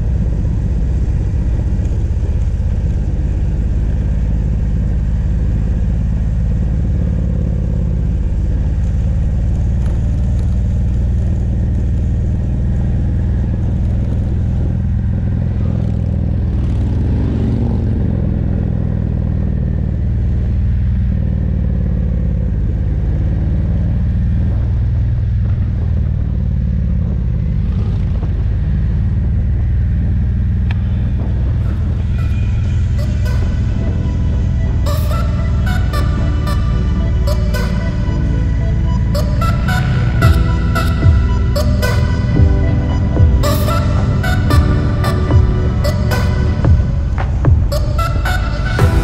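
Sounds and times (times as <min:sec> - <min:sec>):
motorcycle engine running: 0:00.0 - 0:49.0
wind rushing over microphone: 0:24.3 - 0:34.9.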